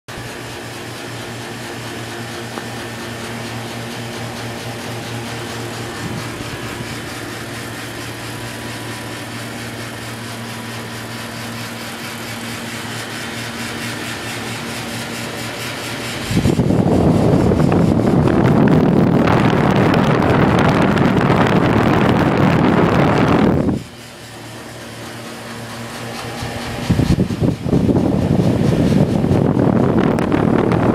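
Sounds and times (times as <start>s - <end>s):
air conditioner unit humming: 0.1s - 30.9s
rush of air: 13.5s - 25.0s, 26.0s - 30.9s.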